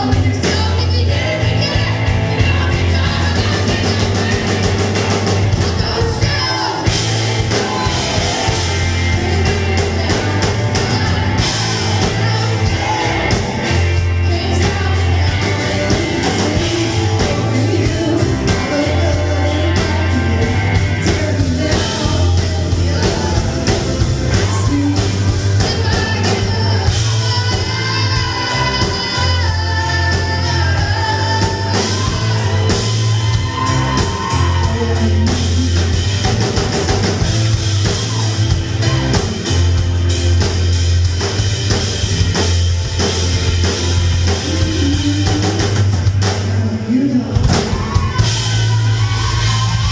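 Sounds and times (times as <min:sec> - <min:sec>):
drums: 0:00.0 - 0:49.9
electric guitar: 0:00.0 - 0:49.9
woman singing into microphone: 0:05.7 - 0:33.0, 0:44.4 - 0:48.2.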